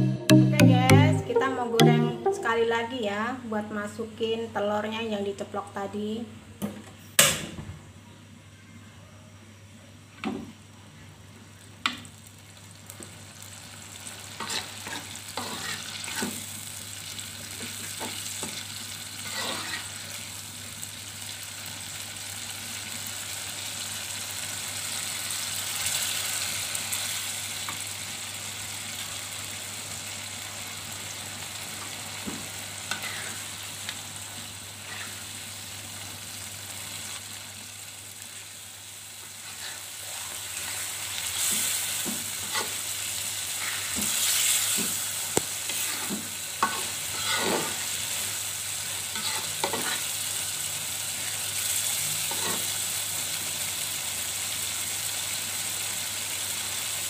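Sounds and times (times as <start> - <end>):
sauce sizzling in a wok: 11.5 - 57.0
metal spatula scraping wok: 14.4 - 16.4, 19.2 - 20.0, 32.9 - 33.5, 34.8 - 35.3, 39.4 - 40.7, 41.3 - 42.9, 43.5 - 45.0, 45.6 - 47.9, 49.1 - 50.2, 52.3 - 52.8.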